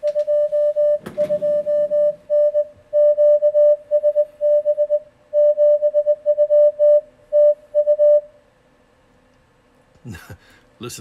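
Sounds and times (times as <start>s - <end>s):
morse code tone: 0.0s - 8.3s.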